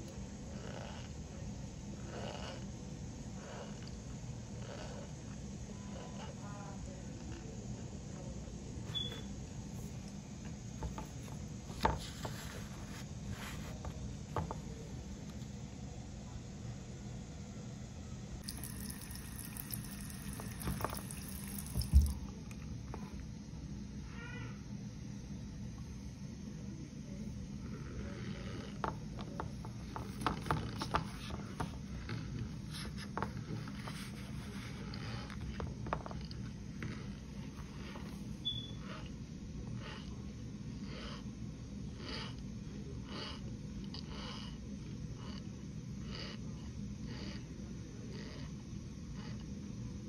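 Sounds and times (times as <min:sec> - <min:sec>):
steady low hum: 0:00.0 - 0:50.0
spoon scraping powder in glass bowl: 0:18.4 - 0:22.2.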